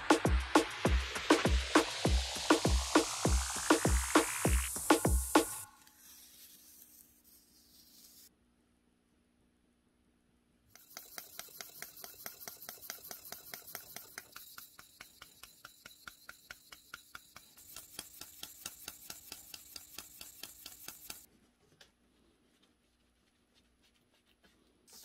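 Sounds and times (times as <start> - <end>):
abrasive block scratching steel blade: 3.6 - 8.3, 10.7 - 21.3.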